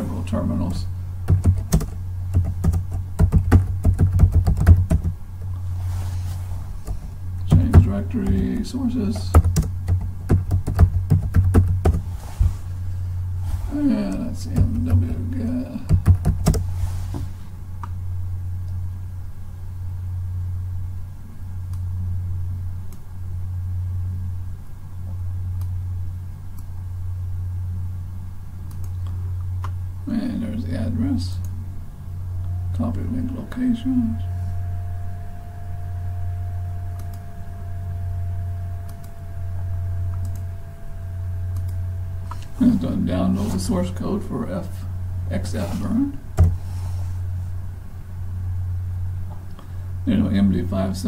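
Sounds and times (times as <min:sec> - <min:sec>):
steady low hum: 0:00.0 - 0:51.0
keyboard typing: 0:01.3 - 0:05.2, 0:09.2 - 0:12.0, 0:15.9 - 0:16.6.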